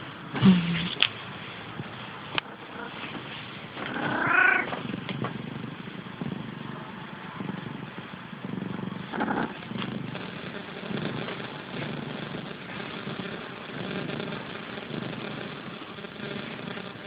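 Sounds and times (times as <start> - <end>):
cat purring: 0.0 - 17.0
cat meowing: 3.9 - 4.8.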